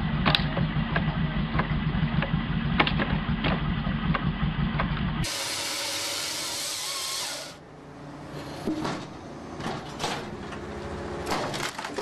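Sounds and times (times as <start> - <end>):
log splitter engine running: 0.0 - 9.6
machine hissing: 5.2 - 7.6.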